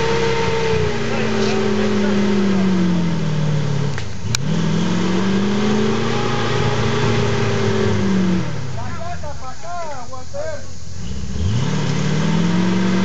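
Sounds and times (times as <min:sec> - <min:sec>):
off-road vehicle engine revving: 0:00.0 - 0:13.0.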